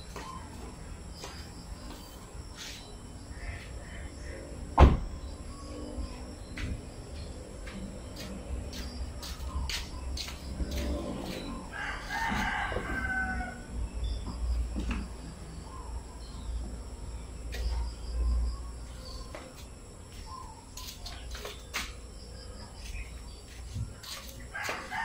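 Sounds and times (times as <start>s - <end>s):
rooster crowing: 10.7s - 13.9s, 24.5s - 25.0s.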